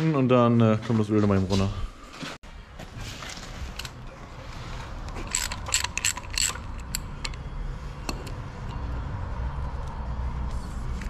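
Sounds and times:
ratchet wrench clicking: 5.2s - 7.4s.

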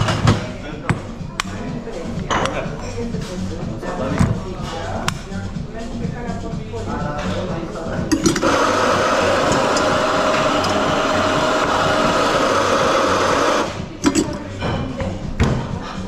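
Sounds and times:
coffee grinder motor grinding: 8.1s - 14.4s.

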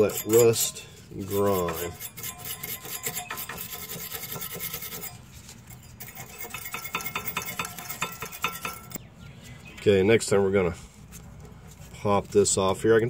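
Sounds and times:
wire brush scrubbing metal: 0.0s - 9.0s.

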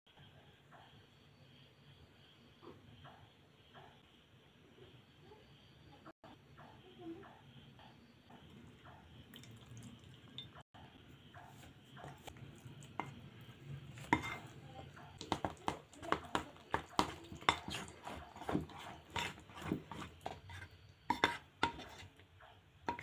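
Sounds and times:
spoon stirring batter in a plate: 7.8s - 23.0s.

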